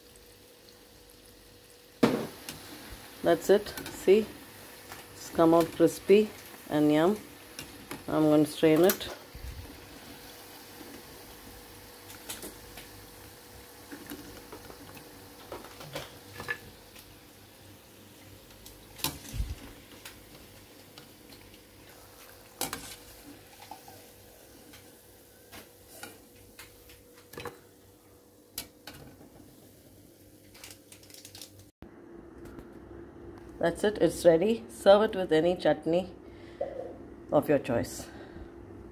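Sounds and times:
food frying in hot oil: 0.0s - 26.1s
faint hum: 31.8s - 38.9s.

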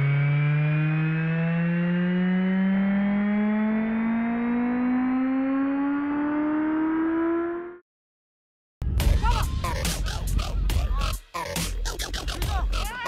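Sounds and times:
synth tone rising in pitch: 0.0s - 7.8s.

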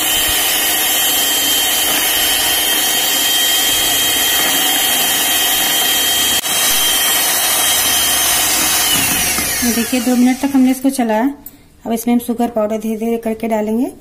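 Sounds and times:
electric hand mixer whipping cream: 0.0s - 10.8s.

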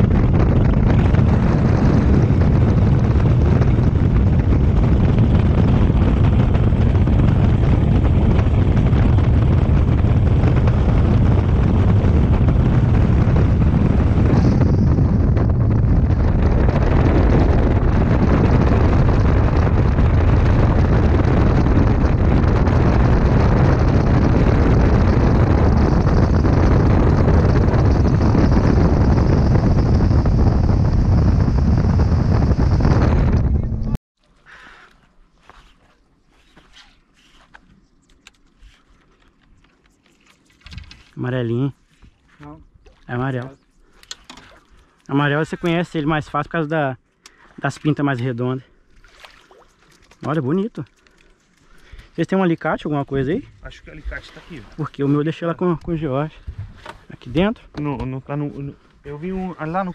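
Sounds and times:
boat motor drone: 0.0s - 34.0s
wind buffeting microphone: 0.0s - 34.0s, 39.9s - 59.9s
water rushing off hull: 47.0s - 52.3s.

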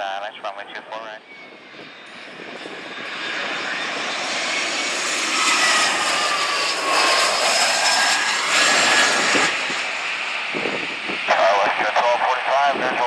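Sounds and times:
jet airliner passing: 0.0s - 13.0s.

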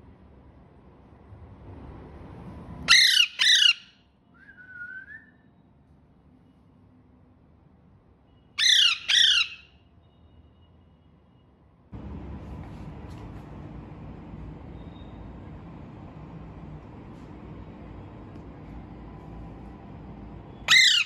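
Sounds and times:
parakeet squawking: 2.9s - 4.0s, 8.6s - 9.7s, 20.6s - 21.0s.

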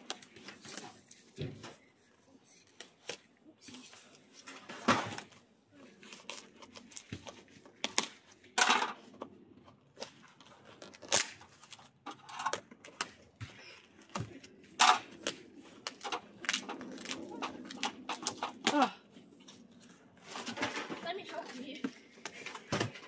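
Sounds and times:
cardboard tearing and rustling: 4.9s - 8.5s, 9.9s - 12.0s, 15.2s - 21.7s.

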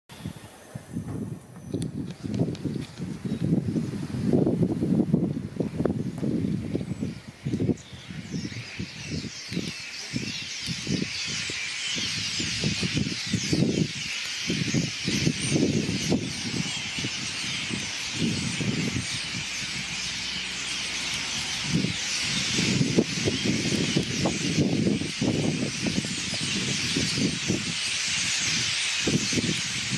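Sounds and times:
low gusty rumbles: 0.3s - 9.2s, 14.6s - 27.8s
flock of starlings chattering: 5.8s - 29.9s.

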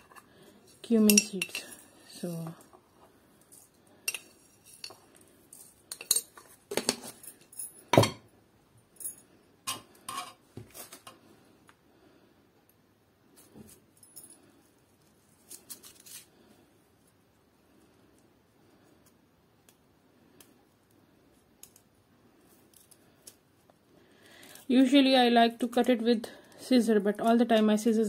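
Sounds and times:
metal spoon clinking bowls: 0.8s - 1.9s, 4.0s - 8.2s.

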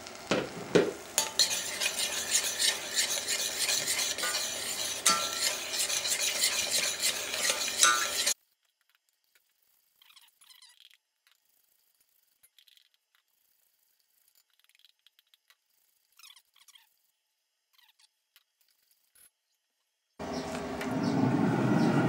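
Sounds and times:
sauce sizzling hiss: 0.0s - 8.4s
spoon clinking on pan: 1.2s - 8.4s
spoon scraping saucepan: 1.2s - 8.4s.

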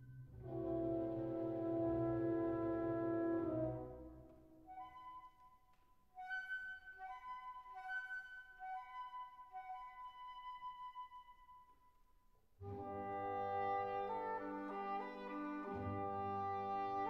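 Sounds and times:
instrumental music: 0.0s - 17.0s.

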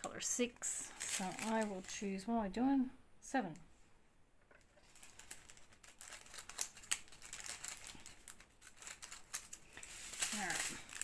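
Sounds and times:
plastic bag crinkling: 0.9s - 2.0s, 4.8s - 11.0s.

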